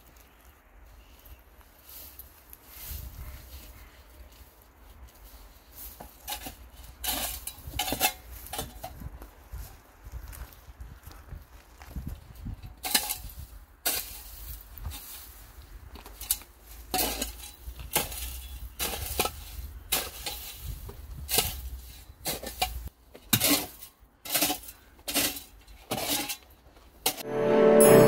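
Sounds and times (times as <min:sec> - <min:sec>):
garden tool scraping grass and gravel: 0:01.0 - 0:08.8, 0:12.8 - 0:26.5.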